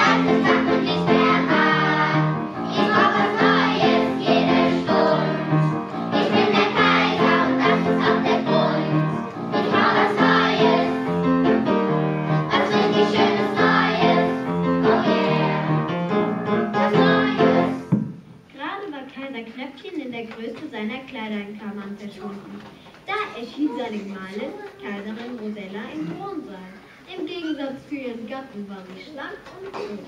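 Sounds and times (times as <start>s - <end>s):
children singing: 0.0s - 11.2s, 12.3s - 15.9s, 16.7s - 17.9s
instrumental accompaniment: 0.0s - 18.3s.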